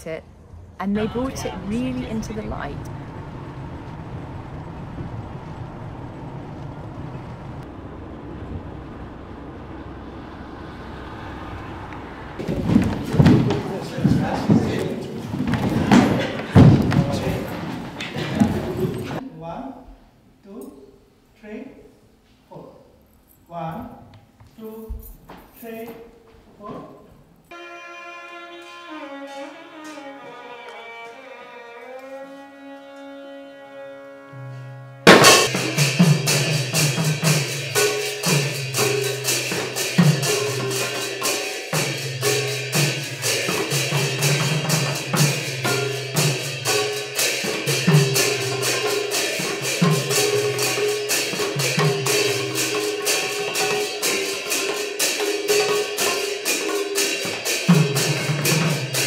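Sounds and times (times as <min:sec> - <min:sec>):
violin sliding melody: 0:27.5 - 0:35.1
fast drumming: 0:35.1 - 0:59.0
metallic cymbal strikes: 0:35.1 - 0:59.0.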